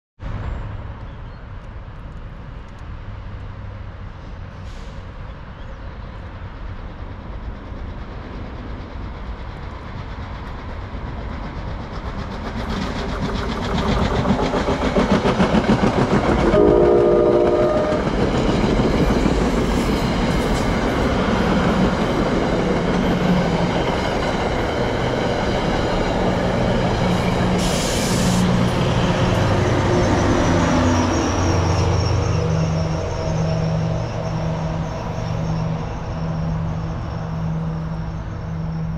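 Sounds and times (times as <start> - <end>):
train rumbling and clattering: 0.3 - 38.9
train horn blast: 16.5 - 18.2.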